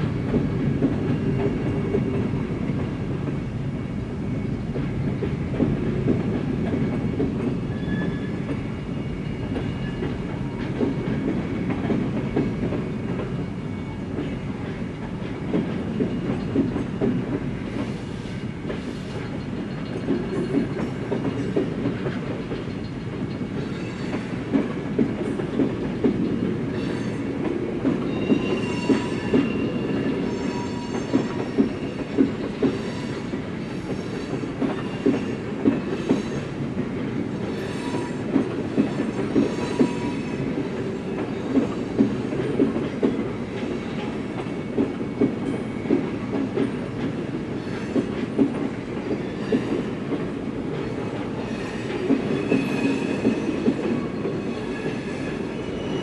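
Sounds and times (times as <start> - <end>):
train wheels rumbling on tracks: 0.0 - 56.0
high wheel squeals: 7.7 - 8.4, 28.0 - 31.4
wheels clacking over rail joints: 18.7 - 55.0.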